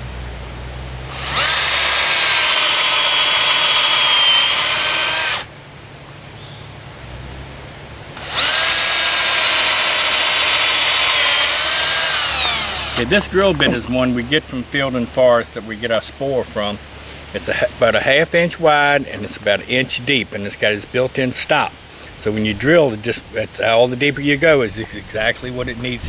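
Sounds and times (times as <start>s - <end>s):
cordless drill boring into wood: 1.1s - 5.5s, 8.2s - 13.2s.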